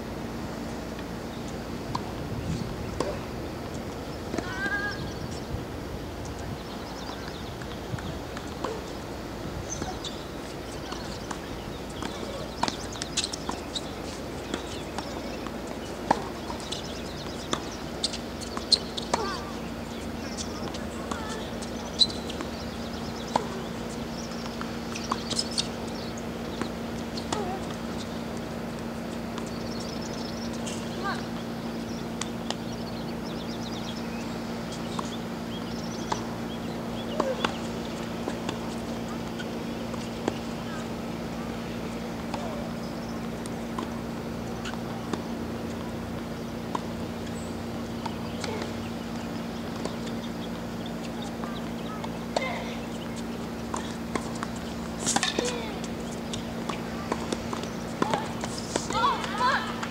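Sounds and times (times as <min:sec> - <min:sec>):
steady low hum: 0:00.0 - 0:59.9
small birds chirping: 0:01.2 - 0:05.6, 0:06.2 - 0:59.9
shoe squeaks: 0:12.1 - 0:14.8, 0:21.2 - 0:22.4
tennis ball being struck: 0:53.7 - 0:59.4.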